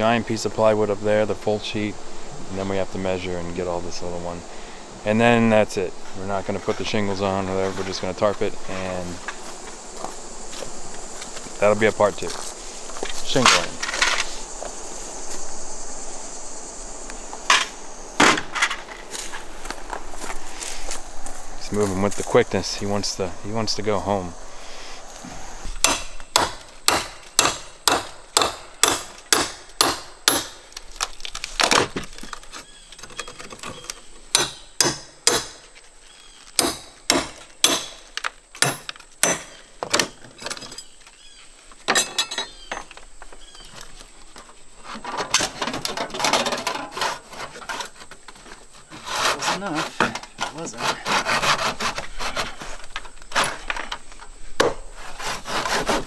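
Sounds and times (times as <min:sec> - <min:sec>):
hand saw cutting wood: 0:46.2 - 0:48.1, 0:48.8 - 0:53.7, 0:55.0 - 0:56.0.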